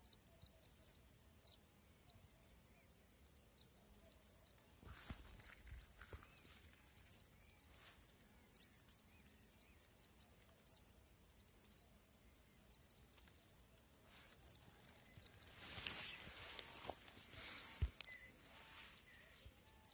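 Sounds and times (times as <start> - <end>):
nestlings peeping: 0.0 - 19.9
dry grass rustling: 4.7 - 8.8, 14.0 - 19.1.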